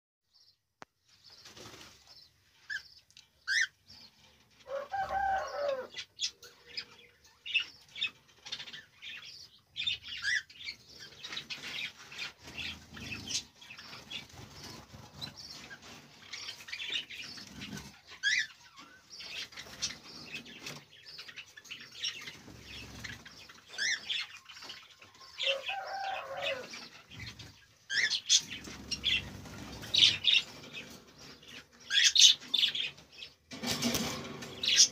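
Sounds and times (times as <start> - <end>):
cockatiels chirping: 2.7 - 3.7, 9.8 - 24.7, 27.9 - 30.4, 31.4 - 32.8
wings flapping: 33.5 - 34.9.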